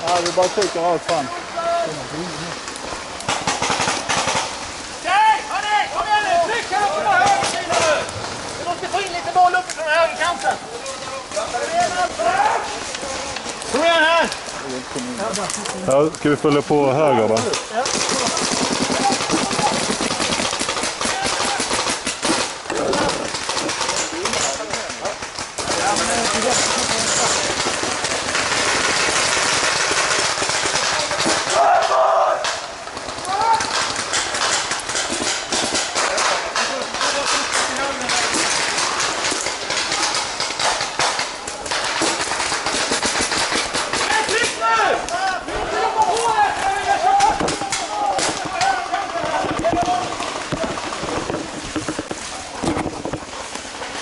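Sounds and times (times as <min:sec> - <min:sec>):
rustling through undergrowth: 0:00.0 - 0:54.0
paintball markers firing: 0:17.4 - 0:31.6, 0:32.4 - 0:44.6.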